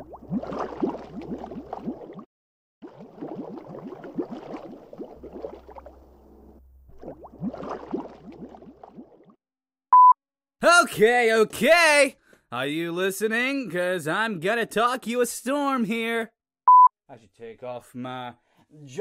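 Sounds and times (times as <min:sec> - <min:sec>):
underwater bubbling: 0:00.0 - 0:09.4.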